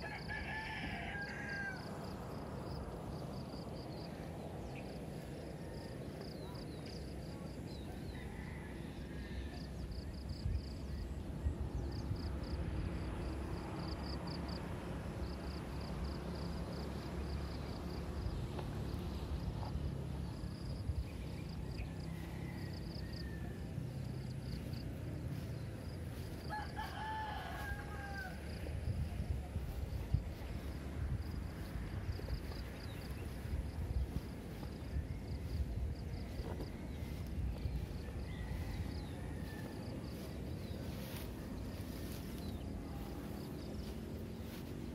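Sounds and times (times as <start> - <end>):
rooster crowing: 0.0 - 2.7, 7.9 - 10.7, 21.0 - 44.6
steady low rumble: 1.8 - 8.2, 9.7 - 44.9.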